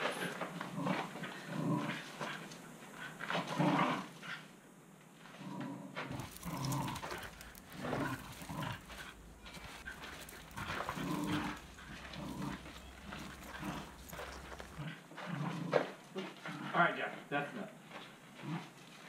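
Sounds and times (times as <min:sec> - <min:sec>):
low steady hum: 0:06.0 - 0:15.2
small dog vocalizing: 0:06.1 - 0:15.0.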